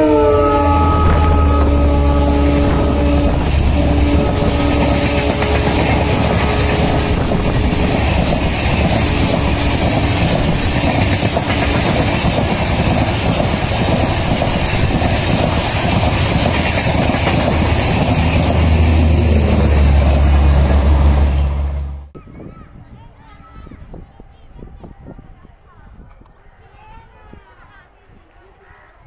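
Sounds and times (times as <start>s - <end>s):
train wheels rushing on rail: 0.0s - 22.1s.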